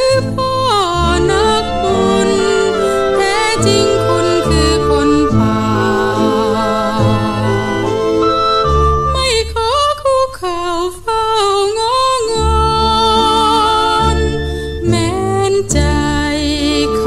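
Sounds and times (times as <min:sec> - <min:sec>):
woman singing with vibrato: 0:00.0 - 0:17.0
band accompaniment with bass line: 0:01.0 - 0:09.4.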